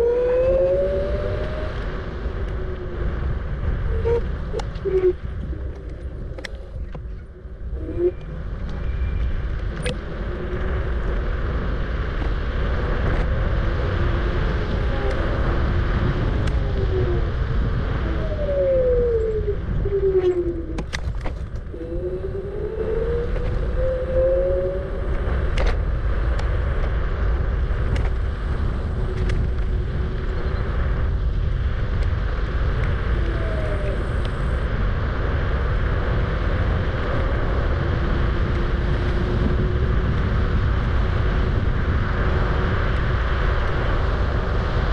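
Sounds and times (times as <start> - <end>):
electric motor whine: 0.0 - 9.3, 21.7 - 26.1
road rumble: 0.0 - 44.9
wind rushing over microphone: 0.0 - 44.9.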